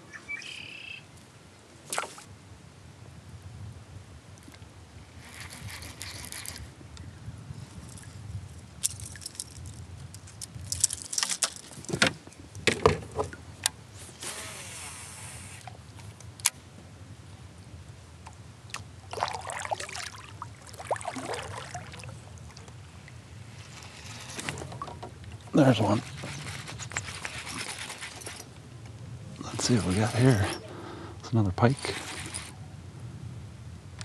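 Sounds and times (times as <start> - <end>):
light wind: 0.0 - 34.0
short hiss: 14.1 - 15.6
waves lapping on hull: 18.7 - 28.5.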